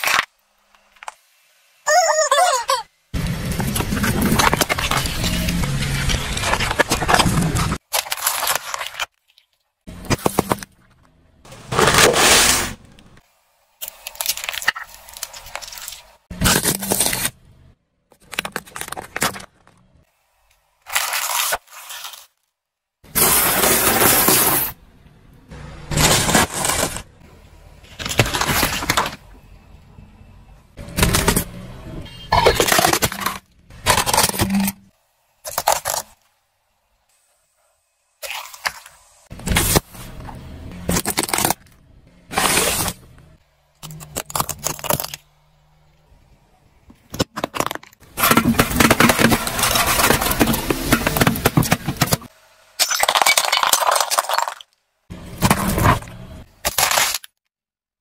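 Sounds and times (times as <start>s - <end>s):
car tyre crushing objects: 9.9s - 13.2s, 25.6s - 29.7s, 30.8s - 36.3s, 38.2s - 57.4s
tyre crushing aluminium cans: 32.2s - 34.9s, 47.1s - 54.6s
tyre crushing plastic bottle: 47.1s - 54.6s.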